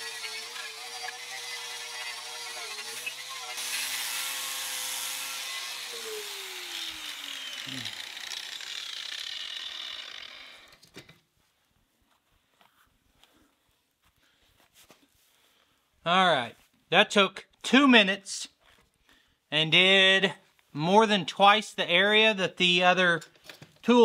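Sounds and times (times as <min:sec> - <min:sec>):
angle grinder grinding metal: 0:00.0 - 0:10.8.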